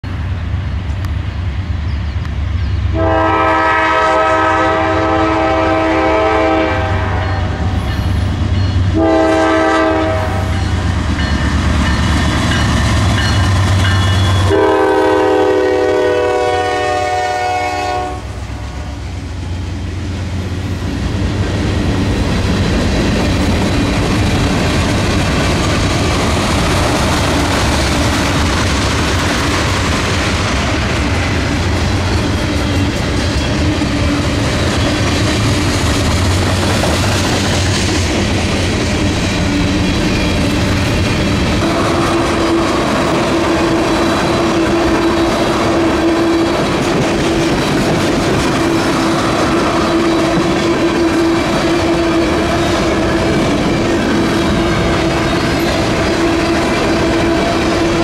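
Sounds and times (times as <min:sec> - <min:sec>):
train wheels rumbling on rail: 0:00.0 - 0:58.0
locomotive air horn: 0:02.9 - 0:07.8, 0:09.0 - 0:10.7, 0:14.2 - 0:19.1, 0:41.6 - 0:46.5
locomotive engine drone: 0:18.2 - 0:58.0.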